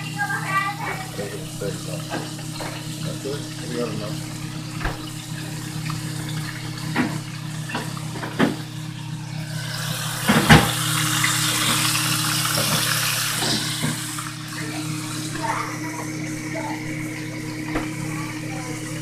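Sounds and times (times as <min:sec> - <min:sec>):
kitchen tap running: 0:00.0 - 0:19.0.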